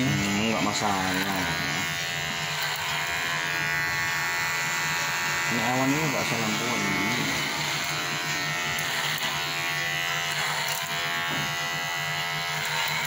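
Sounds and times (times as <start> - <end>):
electric hair clippers buzzing: 0.0 - 13.0.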